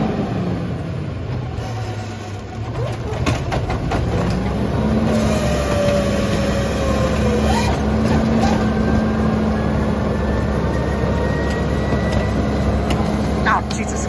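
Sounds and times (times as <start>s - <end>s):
garbage truck engine running: 0.0s - 14.0s.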